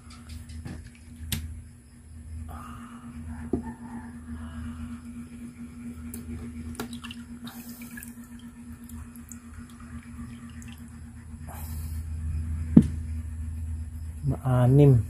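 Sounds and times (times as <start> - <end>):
low hum: 0.0 - 15.0
water dripping and sloshing: 6.1 - 11.3.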